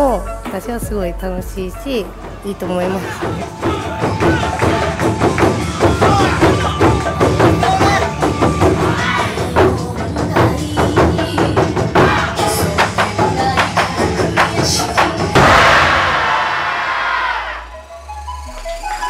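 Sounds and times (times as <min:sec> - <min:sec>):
taiko drum strikes: 0:15.4 - 0:17.4.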